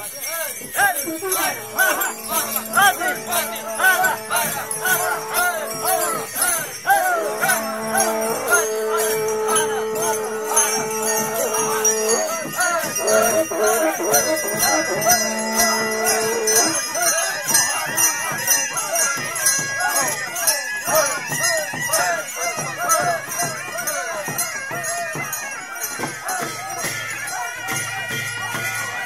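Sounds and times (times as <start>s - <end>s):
small bells jingling: 0.0s - 29.0s
long held tones: 0.7s - 17.6s.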